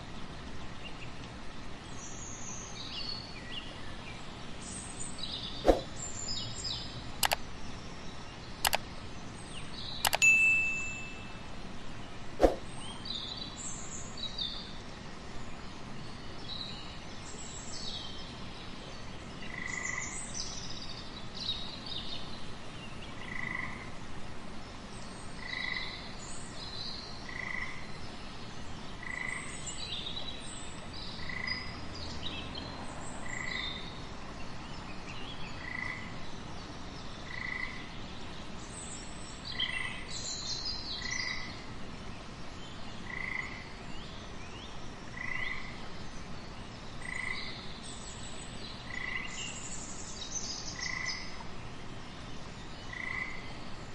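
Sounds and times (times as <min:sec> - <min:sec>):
steady background hiss: 0:00.0 - 0:53.9
higher chirps: 0:10.1 - 0:11.5.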